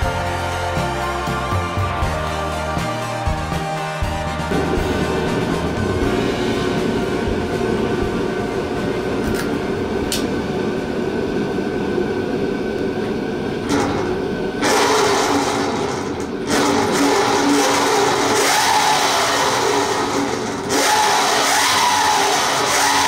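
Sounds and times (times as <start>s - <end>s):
electric motor revving: 14.6s - 23.0s.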